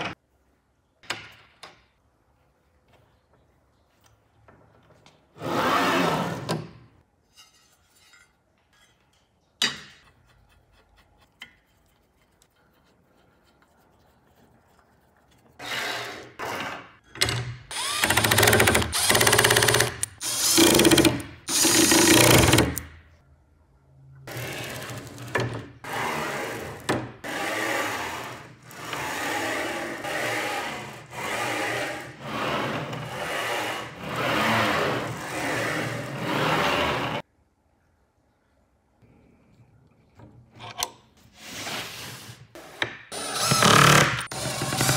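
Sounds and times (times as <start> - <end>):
cordless drill driving screws: 17.7 - 22.8.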